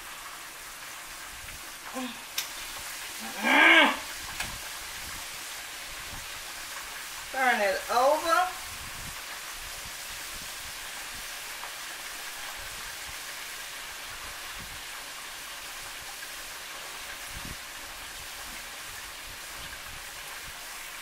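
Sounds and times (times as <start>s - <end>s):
meat sizzling in hot oil: 0.0s - 21.0s.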